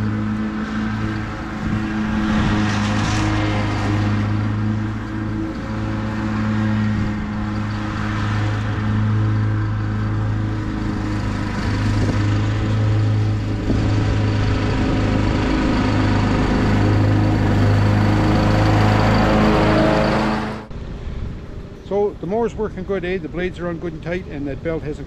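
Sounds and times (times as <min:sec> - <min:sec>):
riding lawn mower engine: 0:00.0 - 0:25.0.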